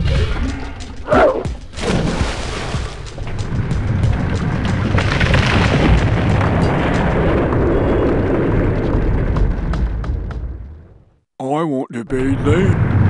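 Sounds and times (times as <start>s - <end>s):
sharp crackling pops: 3.0s - 10.6s
volcanic eruption rumble: 3.4s - 10.9s, 12.1s - 13.0s.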